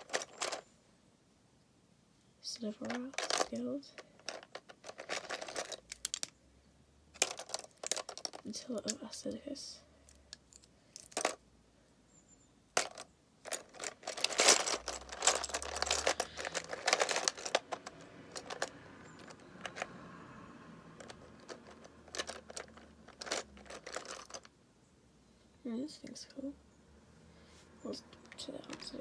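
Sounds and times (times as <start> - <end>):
plastic bricks clicking and rattling: 0.0 - 0.6, 2.8 - 6.4, 7.2 - 9.2, 10.1 - 11.4, 12.8 - 19.9, 21.0 - 24.5, 28.3 - 29.0.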